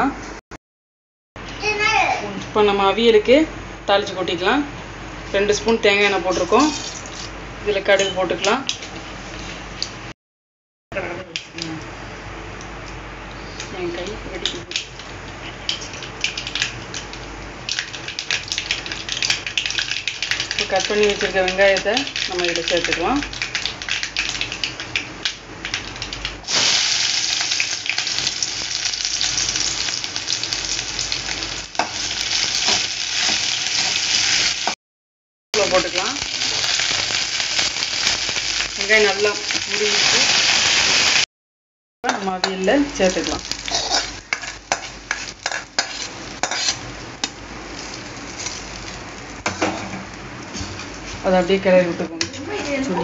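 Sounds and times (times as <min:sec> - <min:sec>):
onions sizzling in hot oil: 0:15.7 - 0:34.8, 0:35.6 - 0:41.3, 0:42.1 - 0:49.5
metal spoon scraping a metal pan: 0:43.6 - 0:46.8.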